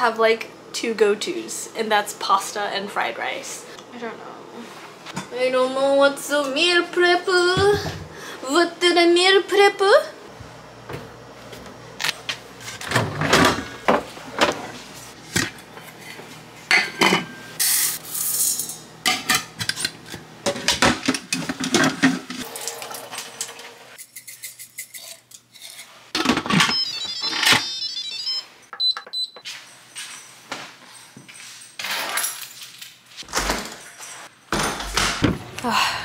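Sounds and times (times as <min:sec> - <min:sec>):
pots and lids clinking: 0:16.7 - 0:25.2
cupboard doors opening and closing: 0:33.2 - 0:33.9, 0:34.5 - 0:35.6.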